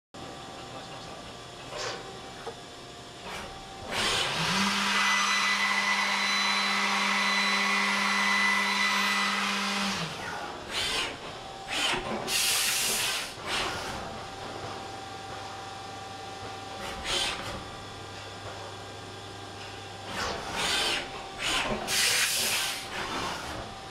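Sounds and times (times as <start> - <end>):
machine hum: 0.2 - 23.9
milling machine cutting metal: 3.3 - 14.1, 20.1 - 23.9.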